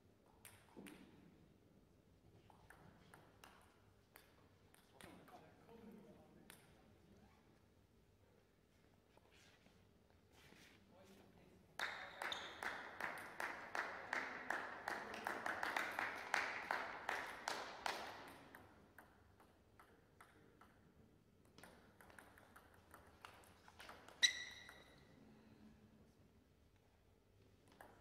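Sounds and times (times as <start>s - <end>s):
table tennis ball bouncing: 0.2s - 1.2s, 2.5s - 5.2s, 17.2s - 25.1s, 27.6s - 28.0s.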